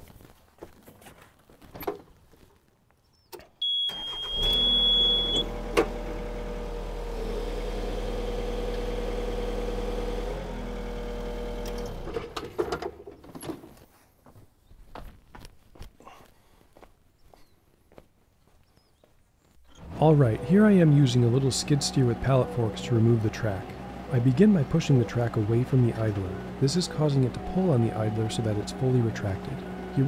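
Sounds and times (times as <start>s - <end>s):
high beep: 3.6s - 5.4s
diesel engine running: 3.9s - 12.3s, 19.7s - 30.0s.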